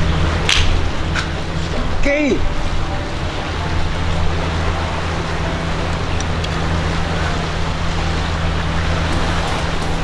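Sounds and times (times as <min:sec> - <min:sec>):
low steady hum: 0:00.0 - 0:10.0
sea noise: 0:00.0 - 0:10.0
wind: 0:00.0 - 0:10.0.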